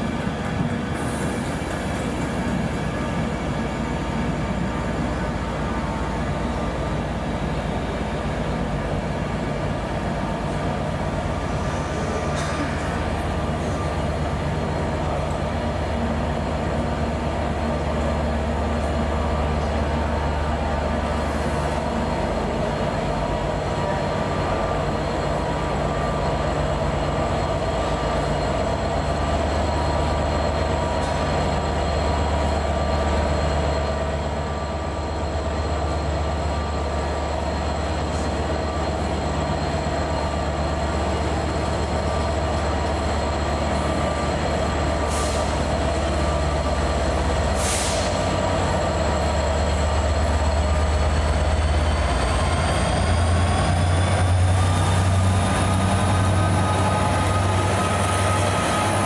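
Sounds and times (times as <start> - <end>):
locomotive whine rising: 0.0 - 59.0
train rolling with low hum: 0.0 - 59.0
train wheels: 0.0 - 59.0
brief hisses: 47.6 - 48.2.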